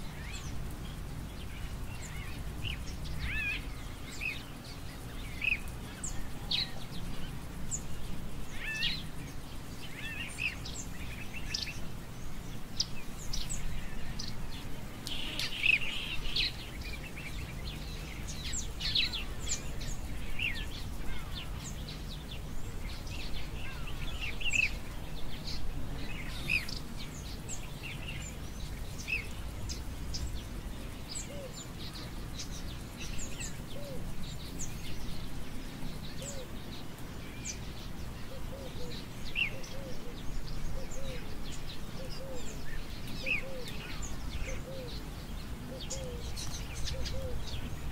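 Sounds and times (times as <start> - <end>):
birds chirping and trilling: 0.0 - 47.9.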